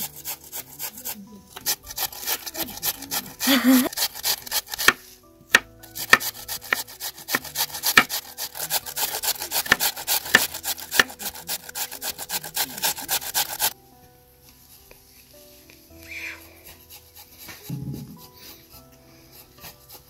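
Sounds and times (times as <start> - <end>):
potato grating on metal grater: 0.0 - 13.8, 16.4 - 20.0.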